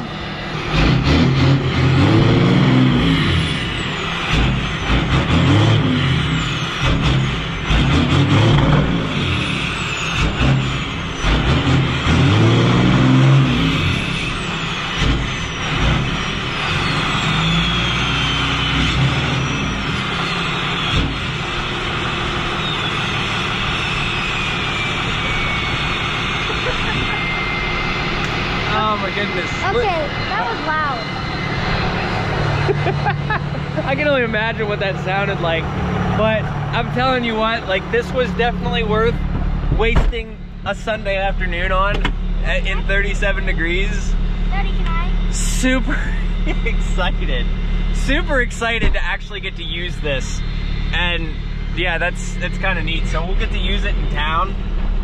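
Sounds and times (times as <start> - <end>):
diesel engine revving: 0.0 - 55.0
high whistle gliding down: 16.2 - 33.4.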